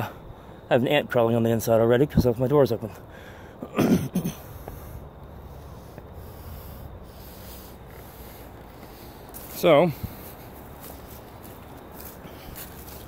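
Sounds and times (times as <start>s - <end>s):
low background noise: 0.0s - 13.0s
breathy snort or exhale: 3.1s - 9.3s
faint rubbing: 4.7s - 13.0s.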